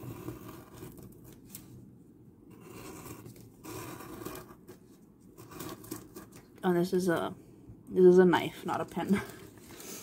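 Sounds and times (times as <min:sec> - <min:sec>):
craft knife cutting paper: 0:00.0 - 0:01.7, 0:02.5 - 0:04.8, 0:05.4 - 0:06.5.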